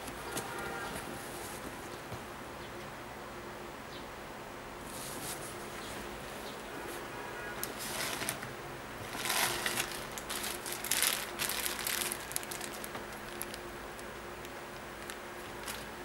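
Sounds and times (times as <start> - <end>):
plastic bag crinkling: 7.6 - 16.0.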